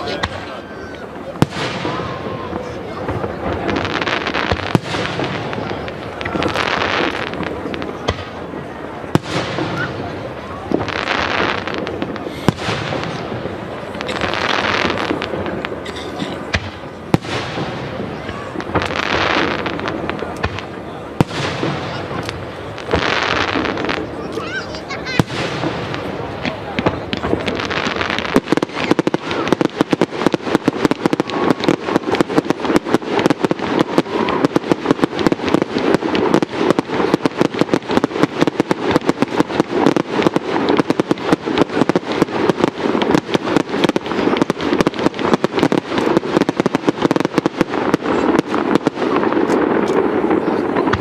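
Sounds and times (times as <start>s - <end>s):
fireworks bursts and crackling: 0.0s - 51.0s.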